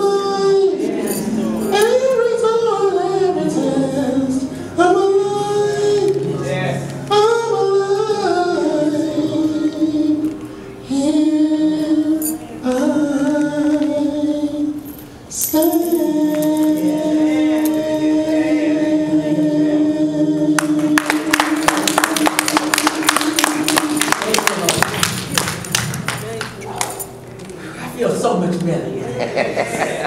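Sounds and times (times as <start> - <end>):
person singing long notes: 0.0 - 24.3
hand clapping: 20.6 - 27.1.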